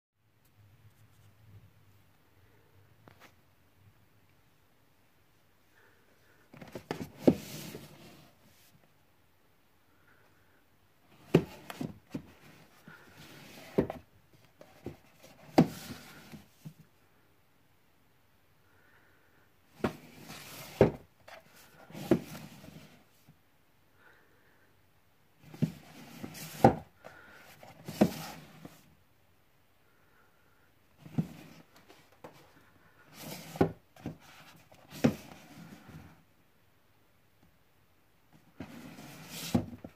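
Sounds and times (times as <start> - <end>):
boxes rubbing and scraping: 6.6 - 8.4, 14.6 - 16.5, 19.8 - 23.0, 25.5 - 26.8, 33.0 - 36.2, 38.6 - 39.9.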